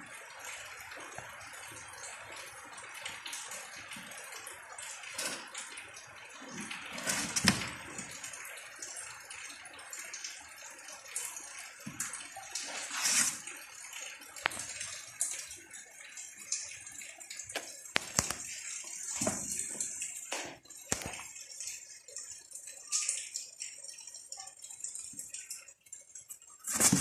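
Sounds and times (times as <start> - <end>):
kittens scratching cardboard box: 26.7 - 27.0.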